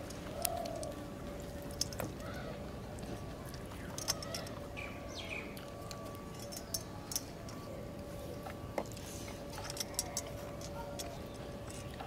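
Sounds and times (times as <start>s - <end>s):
faint hum: 0.0s - 12.0s
bird chirping: 4.8s - 5.6s
bangles and steel dishes clinking: 5.8s - 7.6s, 9.5s - 11.9s.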